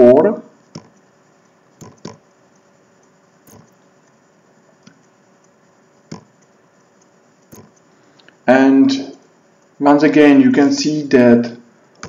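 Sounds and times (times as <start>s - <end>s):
computer mouse clicks: 0.6s - 8.4s.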